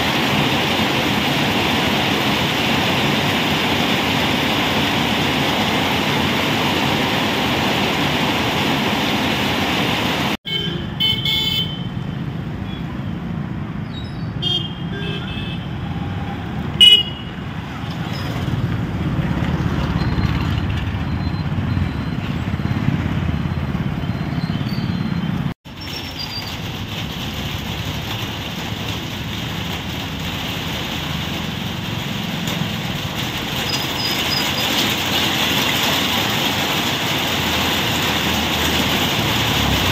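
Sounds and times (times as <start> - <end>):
heavy rain on road: 0.0 - 10.4, 25.7 - 39.9
car horn toots: 10.5 - 11.9, 16.8 - 17.3
vehicle engines running: 15.0 - 39.9.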